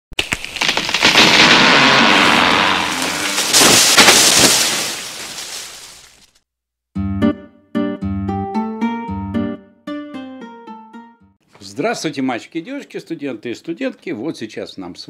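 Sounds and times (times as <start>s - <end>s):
noisy rush with crackles: 0.2s - 6.2s.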